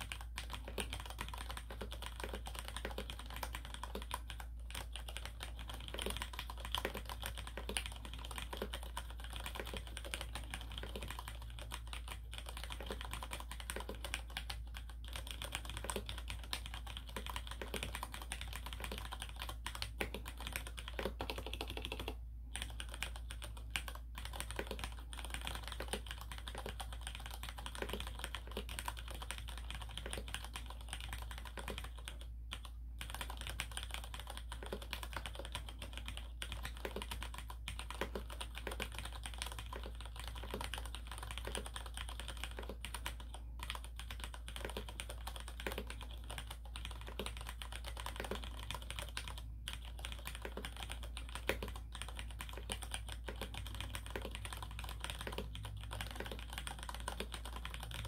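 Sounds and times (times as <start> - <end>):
mechanical keyboard typing: 0.0 - 58.0.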